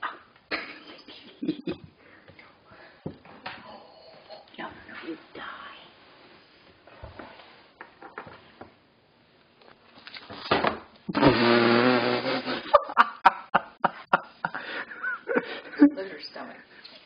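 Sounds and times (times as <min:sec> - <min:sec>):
person laughing: 0:00.5 - 0:02.0, 0:12.2 - 0:16.0.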